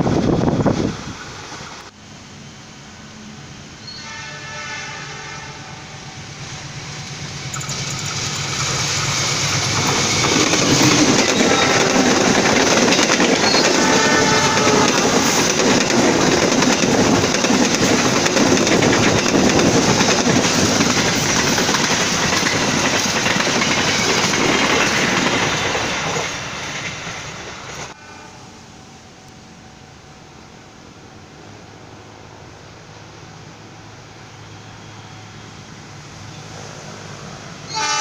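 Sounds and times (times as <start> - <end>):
train wheels rumbling and clacking: 6.1 - 28.0.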